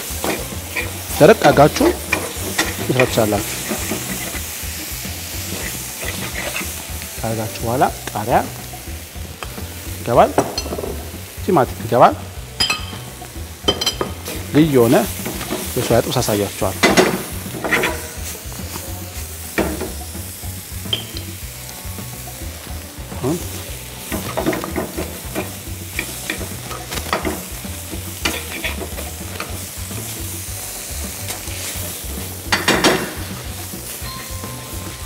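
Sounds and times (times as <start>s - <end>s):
food sizzling in oil: 0.0s - 35.0s
metal spatula scraping pan: 0.1s - 7.0s, 16.8s - 18.3s, 24.0s - 29.7s.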